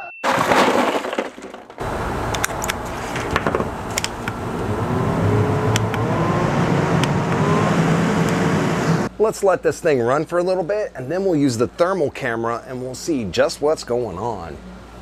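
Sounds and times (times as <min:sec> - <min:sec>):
ice cubes rattling into cooler: 0:00.2 - 0:01.8
small fan blowing air: 0:01.9 - 0:09.1
fan clicks: 0:02.2 - 0:04.4, 0:05.7 - 0:06.0.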